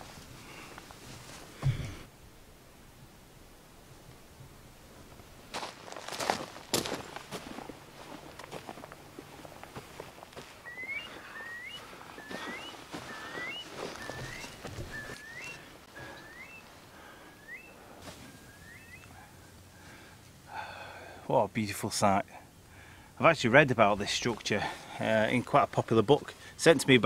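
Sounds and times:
footsteps on grass: 5.0 - 17.2, 17.8 - 18.9
bird whistling rising notes: 10.6 - 19.2.

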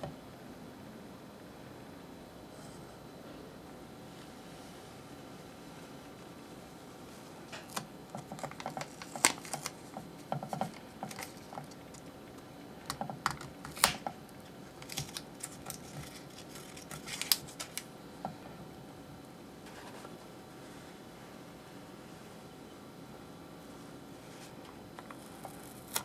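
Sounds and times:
adhesive tape crackling and snapping: 7.5 - 17.9, 25.0 - 26.0.

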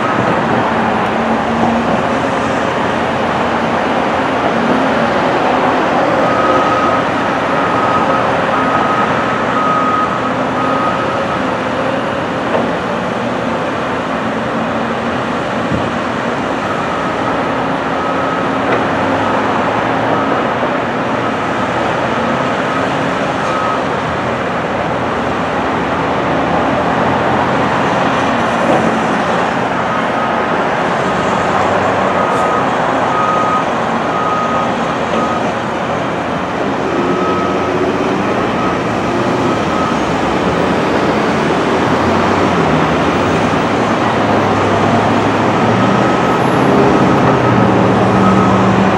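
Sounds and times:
diesel engine running: 0.0 - 48.9
backup alarm beeping: 5.6 - 11.5, 32.1 - 35.6, 36.8 - 40.8, 45.5 - 48.9.

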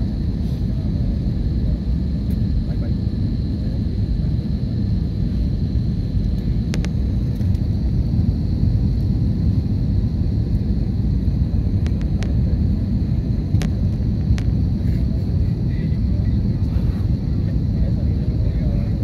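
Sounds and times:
airliner cabin engine rumble: 0.0 - 19.0.

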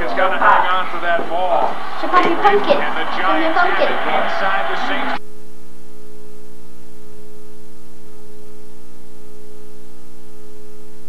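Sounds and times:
steady electrical hum: 3.6 - 11.0.

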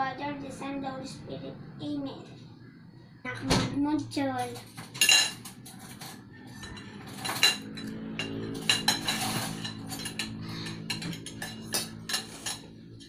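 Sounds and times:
cutlery clinking on plates: 4.4 - 12.8.

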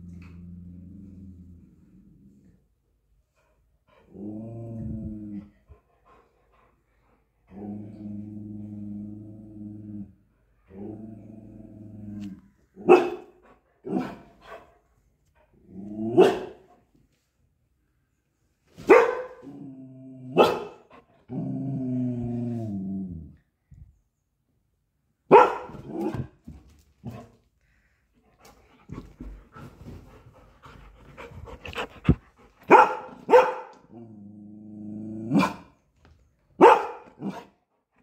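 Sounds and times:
dog growling: 0.0 - 2.6, 21.2 - 23.4
dog barking: 12.8 - 13.3, 16.2 - 16.6, 18.8 - 19.5, 20.3 - 20.8, 25.3 - 26.1, 32.6 - 33.8, 35.4 - 35.7, 36.6 - 37.5.

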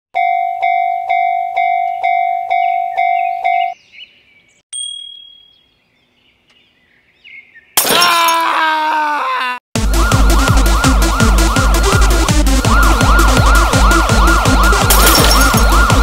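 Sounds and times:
electronic alarm ding: 0.2 - 3.8, 4.7 - 5.6
long falling pitched tones: 9.8 - 14.9.

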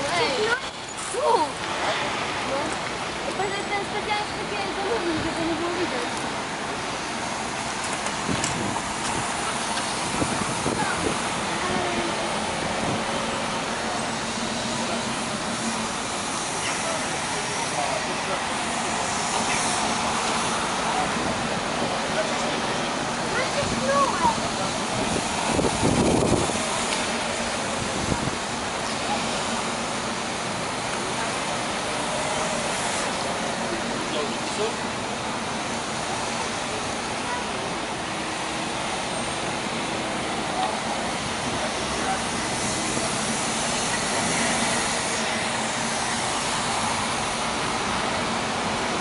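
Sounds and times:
buses driving past: 0.0 - 49.0.

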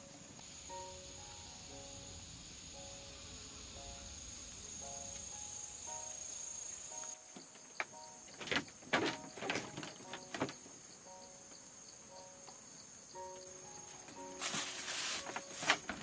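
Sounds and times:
insects shrilling: 0.0 - 16.0
wooden knocks and clatters: 7.3 - 10.8, 14.0 - 16.0.

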